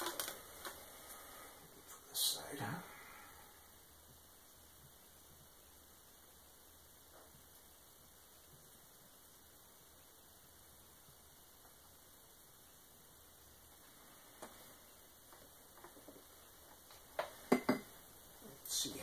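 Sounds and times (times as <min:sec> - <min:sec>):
faint electrical hum: 0:00.0 - 0:19.0
low hiss: 0:00.0 - 0:19.0.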